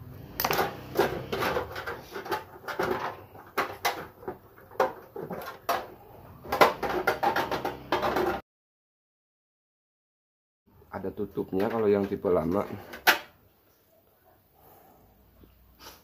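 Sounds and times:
plastic cover clattering and clicking: 0:00.4 - 0:08.4.

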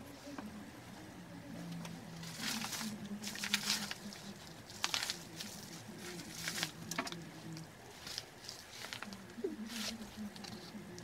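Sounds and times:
low steady hum: 0:00.0 - 0:11.0
paper envelope rustling: 0:02.2 - 0:10.8.

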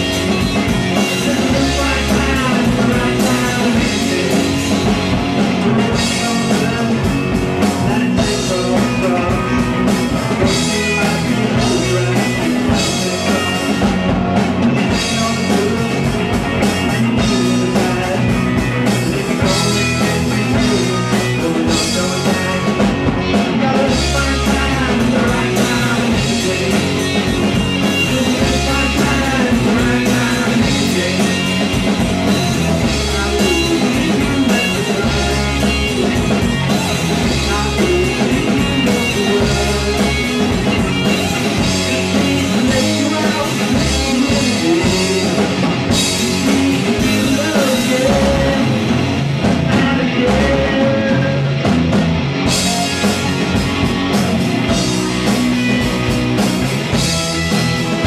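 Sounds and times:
drum kit: 0:00.0 - 0:58.0
electric guitars: 0:00.0 - 0:58.0.

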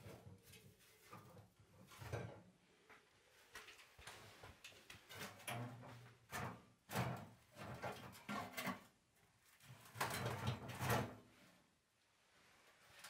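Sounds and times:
metal stove scraping and knocking: 0:05.1 - 0:08.9, 0:09.9 - 0:11.2.

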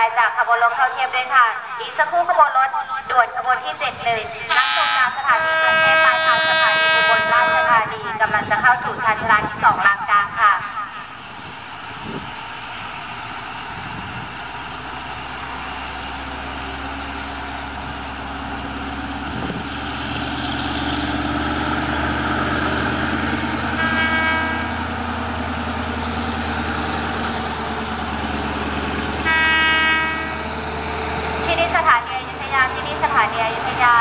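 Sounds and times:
diesel locomotive engine whining: 0:00.0 - 0:34.0
train horn: 0:04.5 - 0:08.1, 0:23.7 - 0:24.9, 0:29.2 - 0:30.5.

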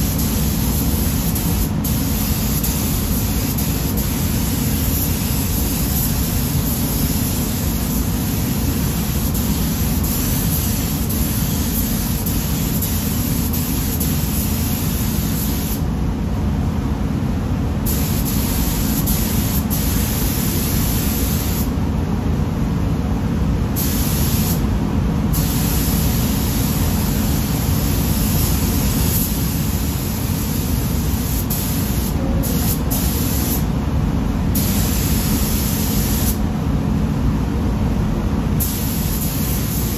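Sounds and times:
paint spray gun hissing: 0:00.0 - 0:15.8, 0:17.9 - 0:21.7, 0:25.4 - 0:33.7, 0:34.6 - 0:36.4, 0:38.6 - 0:39.9
low rumble of air system: 0:00.0 - 0:39.9.

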